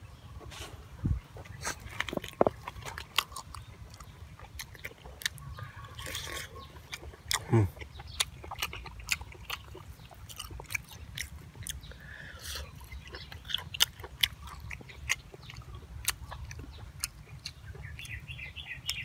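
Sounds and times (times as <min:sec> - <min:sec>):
person chewing with mouth open: 0:01.3 - 0:19.0.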